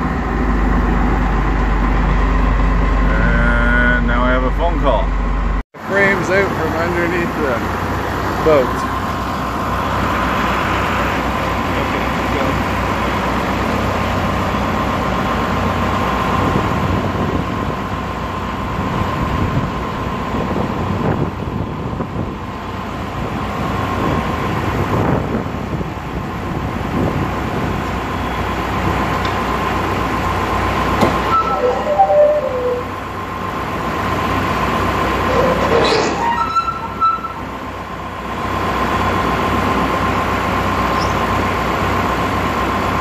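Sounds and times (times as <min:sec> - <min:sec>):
tractor engine running with whine: 0:00.0 - 0:43.0
short squeaks: 0:31.0 - 0:33.0, 0:35.2 - 0:37.4, 0:40.9 - 0:41.2.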